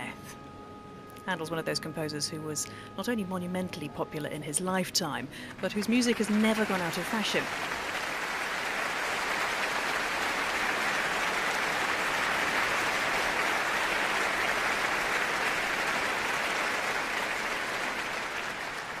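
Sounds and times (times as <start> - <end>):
concert audience applauding: 5.6 - 19.0.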